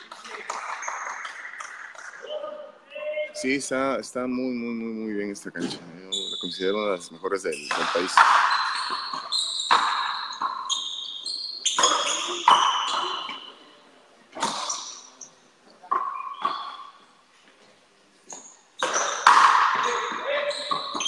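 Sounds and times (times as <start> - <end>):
short high squeaks: 7.5 - 13.6, 19.8 - 21.0.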